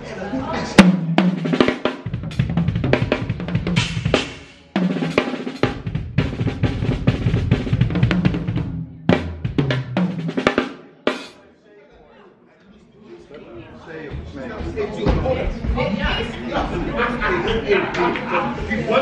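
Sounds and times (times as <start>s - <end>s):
drum kit playing: 0.8s - 11.4s.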